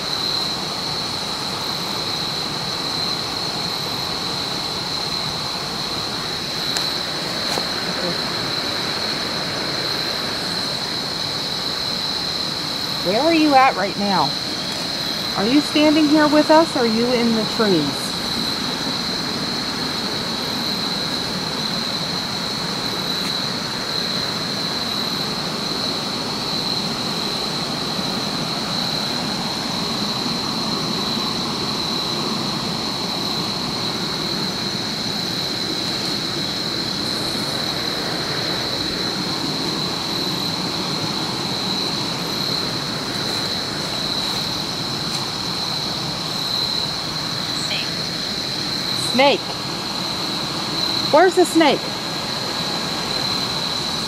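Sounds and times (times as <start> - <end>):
static hiss: 0.0 - 54.0.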